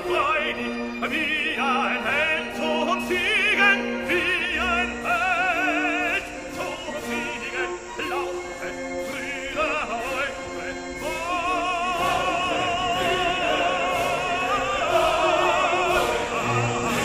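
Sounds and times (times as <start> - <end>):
operatic singing with vibrato: 0.0 - 17.0
orchestral backing music: 0.0 - 17.0.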